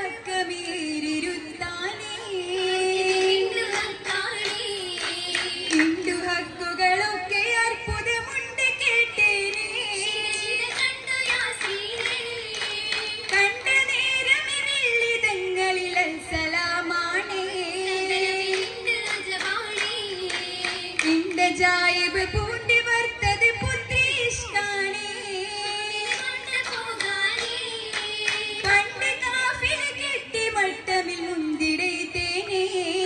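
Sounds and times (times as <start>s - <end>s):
girls singing in chorus: 0.0s - 33.0s
hand claps: 3.0s - 6.3s, 9.4s - 14.6s, 17.4s - 21.6s, 25.7s - 29.9s.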